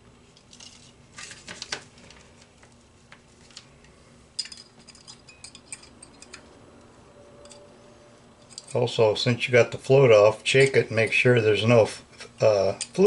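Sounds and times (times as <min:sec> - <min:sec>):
small metal parts clicking: 0:04.4 - 0:06.6, 0:07.4 - 0:07.7, 0:08.4 - 0:08.9.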